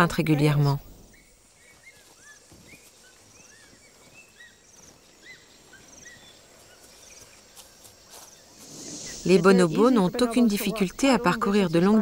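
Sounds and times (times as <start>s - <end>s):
steady high insect tone: 0.0s - 12.0s
buzzy insect trill: 8.1s - 12.0s
low hiss: 8.4s - 12.0s.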